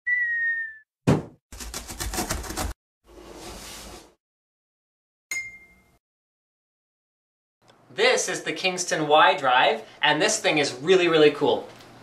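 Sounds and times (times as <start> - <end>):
bright ding: 5.3 - 6.0.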